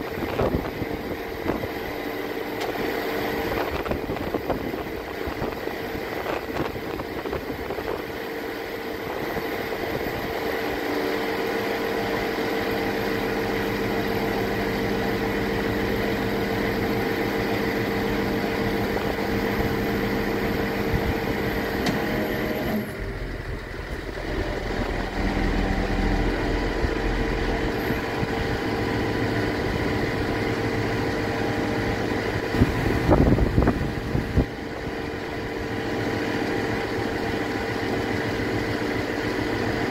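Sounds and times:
truck engine running: 0.0 - 39.9
hydraulic humming tones: 9.2 - 38.6
deep rumble: 18.1 - 34.6.

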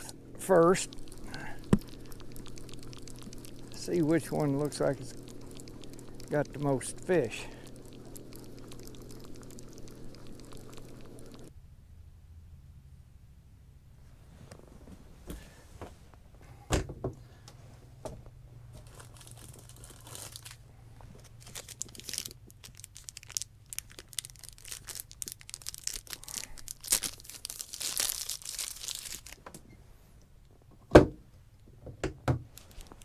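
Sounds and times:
plastic wrapper crinkling and tearing: 18.8 - 29.5, 32.5 - 33.0.

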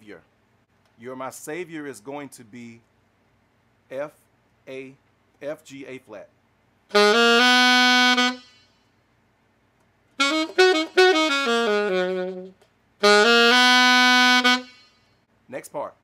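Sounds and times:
saxophone playing: 6.9 - 8.8, 10.2 - 15.1.

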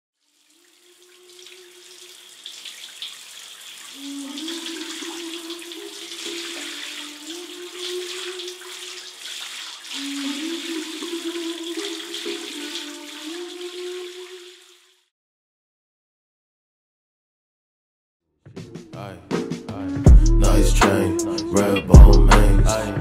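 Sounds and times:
running water like a shower: 0.2 - 15.1.

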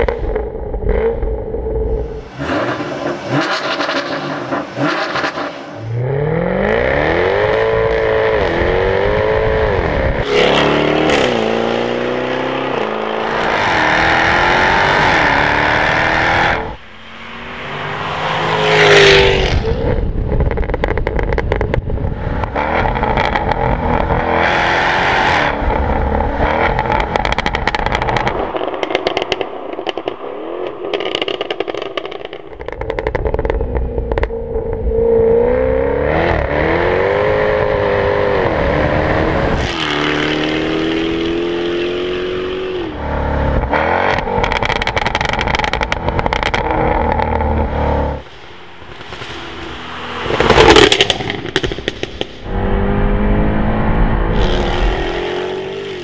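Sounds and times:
sports car engine revving: 0.0 - 16.8, 30.9 - 48.2, 48.9 - 56.0
exhaust crackles and pops: 19.4 - 24.3, 25.5 - 35.0, 43.6 - 53.2.

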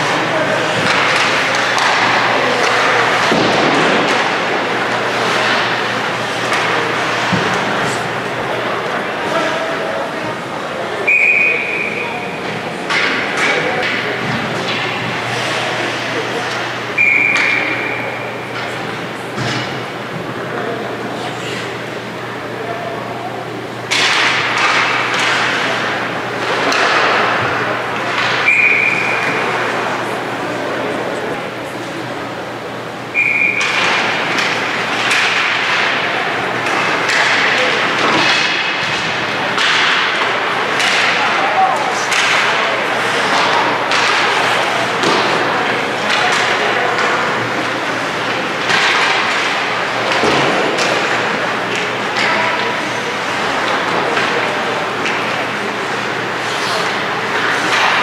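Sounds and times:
hockey sticks and puck clacking: 0.0 - 31.9, 33.1 - 58.0
ice rink crowd noise: 0.0 - 58.0
referee's whistle blast: 11.1 - 12.0, 33.2 - 33.7.

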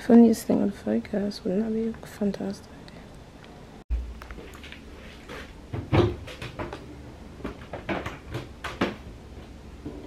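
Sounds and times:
cabinet door clunking: 5.7 - 6.8.

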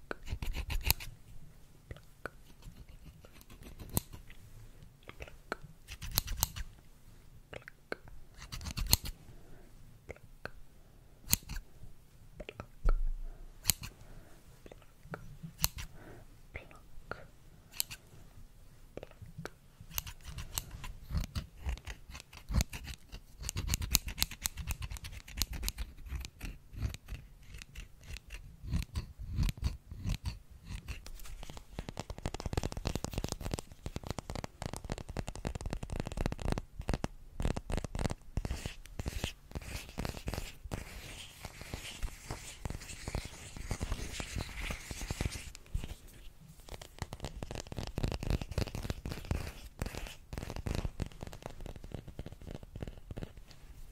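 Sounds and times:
scissors snipping: 0.2 - 1.1, 2.8 - 4.2, 5.9 - 6.7, 8.4 - 9.1, 11.3 - 11.6, 13.6 - 13.9, 15.6 - 15.9, 19.9 - 40.9
scratchy rustle: 19.9 - 53.9.

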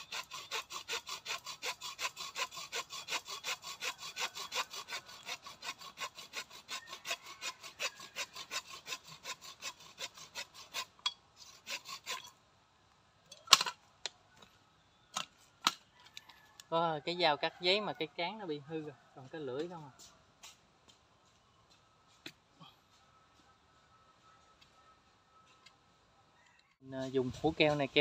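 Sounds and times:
hand saw cutting a trunk: 0.0 - 12.3.

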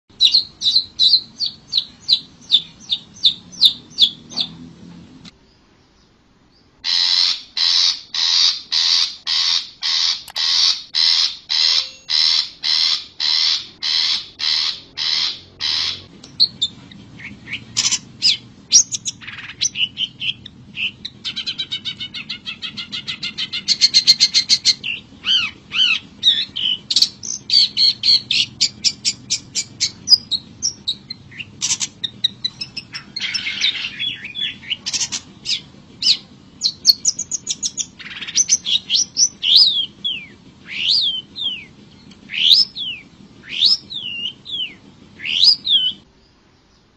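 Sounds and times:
bird harsh rasping calls: 0.1 - 4.5, 6.8 - 46.1
bird whistles chirps and trills: 0.1 - 4.5, 6.9 - 46.1.

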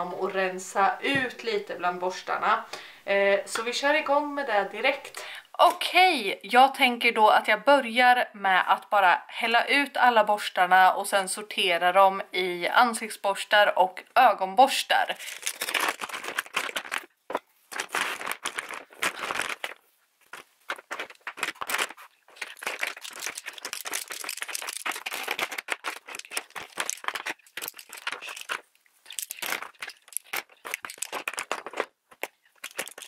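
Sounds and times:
makeup brushes clattering: 20.3 - 33.0.

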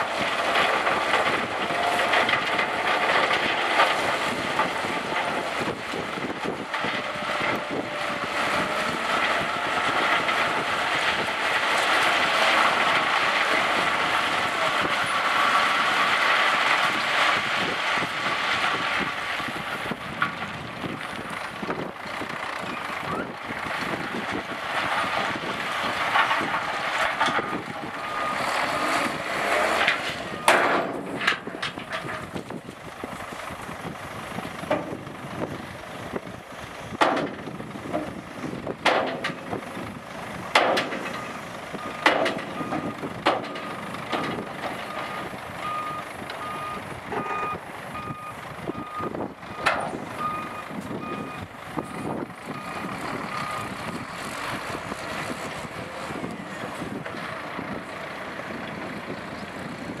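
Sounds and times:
gravel being dumped: 0.0 - 35.4
diesel truck engine running: 0.0 - 60.0
reversing alarm beeping: 41.2 - 43.0, 43.6 - 51.9.

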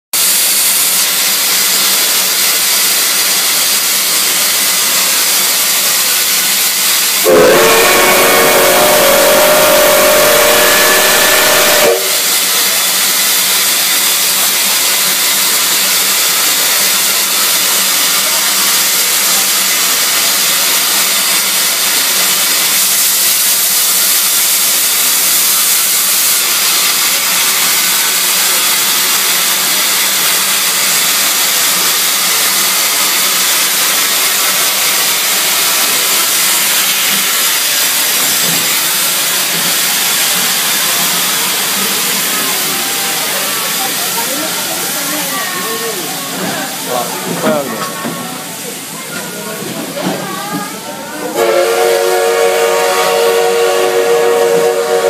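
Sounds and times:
steam locomotive hissing: 0.2 - 55.0
steam whistle blowing: 7.2 - 14.3, 51.4 - 55.0.

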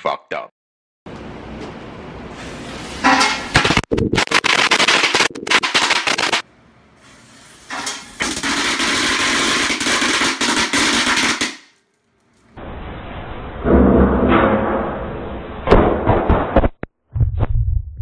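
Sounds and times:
firecrackers popping: 3.6 - 6.4, 7.7 - 11.8.

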